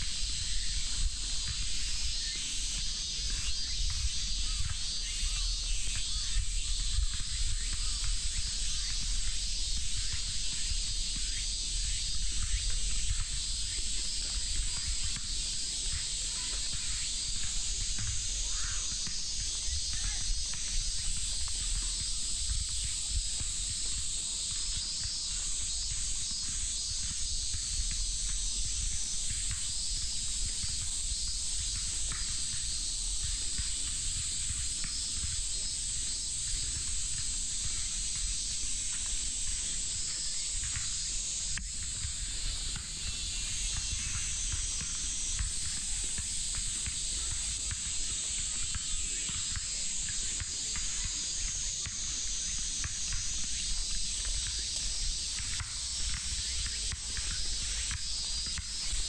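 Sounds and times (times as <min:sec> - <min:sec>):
cicada chorus: 0:00.0 - 0:59.0.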